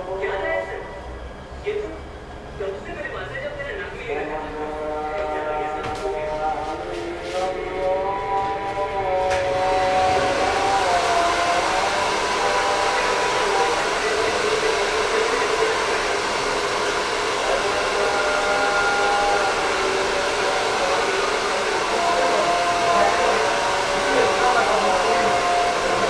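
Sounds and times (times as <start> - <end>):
electric blower hissing: 7.1 - 26.0.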